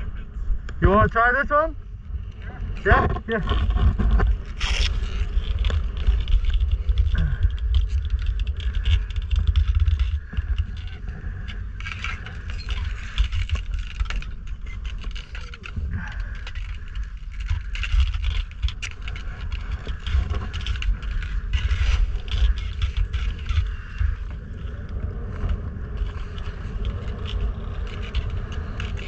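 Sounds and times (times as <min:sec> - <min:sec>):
wind buffeting microphone: 0:00.0 - 0:29.0
ice skates scraping ice: 0:03.9 - 0:07.0.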